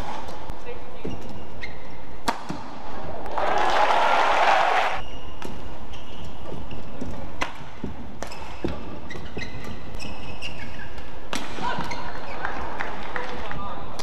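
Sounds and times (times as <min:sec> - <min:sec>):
shoes squeaking on floor: 0:00.9 - 0:02.1, 0:05.0 - 0:12.4
racket striking shuttlecock: 0:02.2 - 0:02.7
crowd noise: 0:02.8 - 0:05.0.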